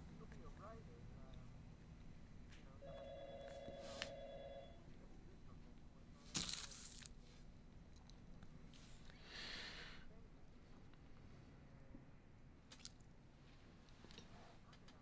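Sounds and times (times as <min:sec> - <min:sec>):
two-tone telephone ring: 0:02.8 - 0:04.8.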